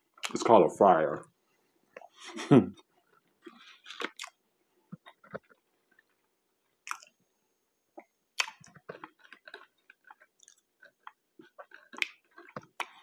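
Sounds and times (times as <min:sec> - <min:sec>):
close chewing mouth sounds: 0:03.0 - 0:07.1, 0:08.0 - 0:13.0.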